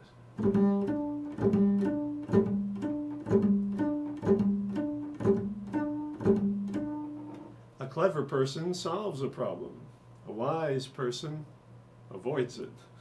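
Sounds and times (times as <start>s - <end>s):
plucked double bass: 0.4s - 7.5s.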